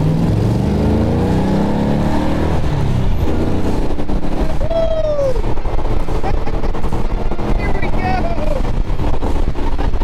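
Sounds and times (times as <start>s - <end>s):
car engine accelerating hard: 0.0s - 10.0s
person shouting: 4.6s - 5.4s.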